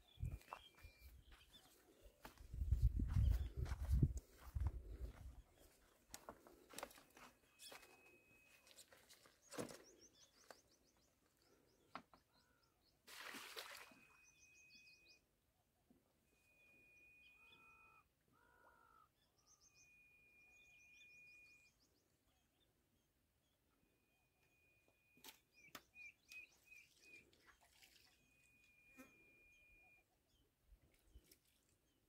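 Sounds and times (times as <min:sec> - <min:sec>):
footsteps over dry sticks: 0:00.2 - 0:10.7.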